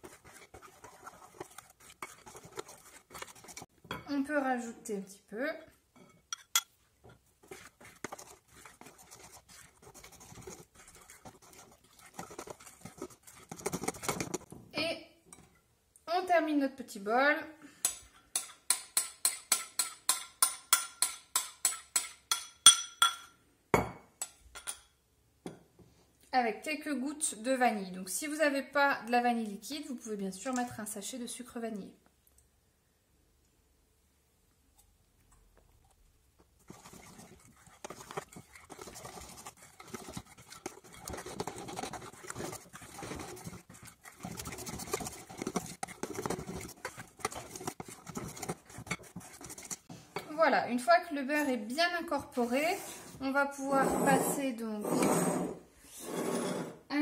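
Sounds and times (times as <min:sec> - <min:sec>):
metal spoon stirring batter in bowl: 0:00.0 - 0:14.6, 0:17.8 - 0:23.4, 0:24.2 - 0:24.9, 0:29.1 - 0:31.6, 0:34.7 - 0:54.8
metal spoon clinking ceramic bowl: 0:06.0 - 0:06.8, 0:17.9 - 0:24.9.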